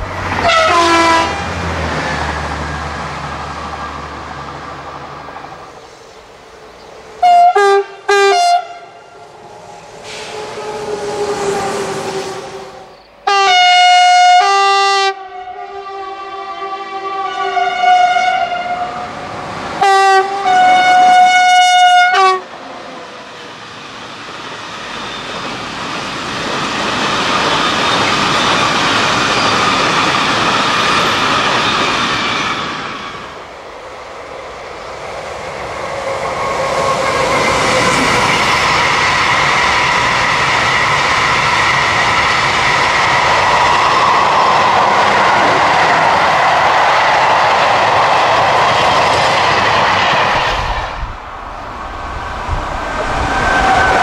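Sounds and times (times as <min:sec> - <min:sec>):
freight train passing: 0:00.0 - 0:54.0
locomotive horn blasts: 0:00.4 - 0:01.5, 0:07.2 - 0:09.0, 0:12.4 - 0:19.0, 0:19.8 - 0:22.5.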